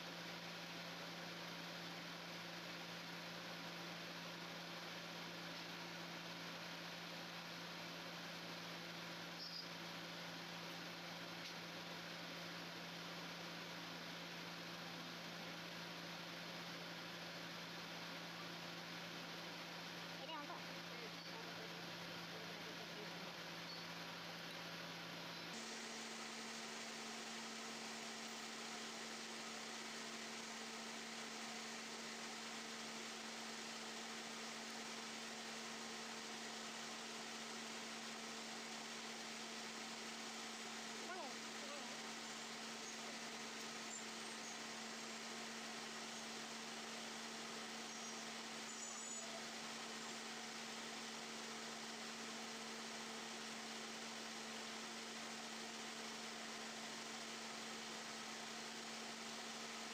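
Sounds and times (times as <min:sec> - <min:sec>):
constant low hum: 0:00.0 - 0:59.9
steady hiss: 0:24.7 - 0:47.3.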